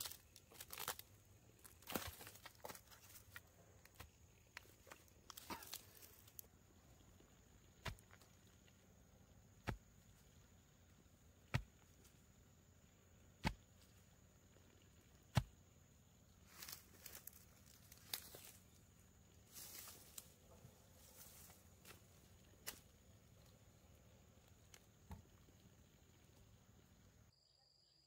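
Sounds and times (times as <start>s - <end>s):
rustling in dry bamboo litter: 0.0s - 6.5s, 16.4s - 23.0s
stake pounded into ground: 7.8s - 8.2s, 9.6s - 9.9s, 11.5s - 11.8s, 13.4s - 13.7s, 15.3s - 15.5s.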